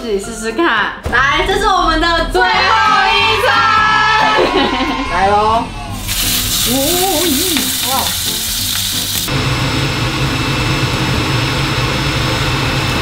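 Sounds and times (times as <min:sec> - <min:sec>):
pork sizzling in a frying pan: 0:06.0 - 0:09.4.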